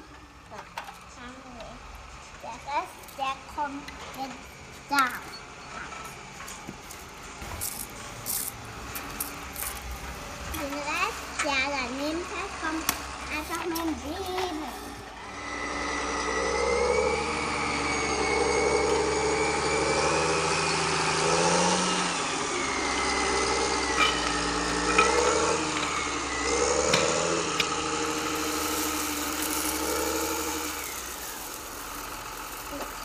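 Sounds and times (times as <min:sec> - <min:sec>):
tractor engine running: 0:21.1 - 0:33.0.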